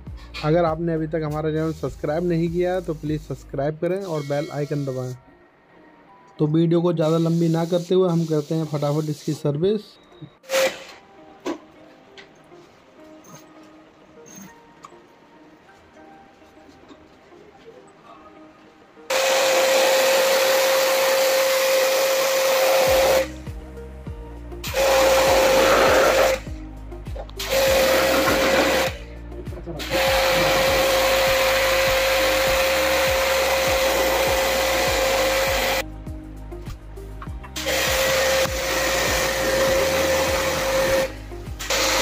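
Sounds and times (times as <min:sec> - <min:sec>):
music with steady beat: 0:00.0 - 0:06.4, 0:10.3 - 0:42.0
pressure washer spraying: 0:07.0 - 0:09.4, 0:10.5 - 0:11.0, 0:19.1 - 0:23.4, 0:24.6 - 0:26.5, 0:27.4 - 0:29.1, 0:29.8 - 0:35.9, 0:37.6 - 0:42.0.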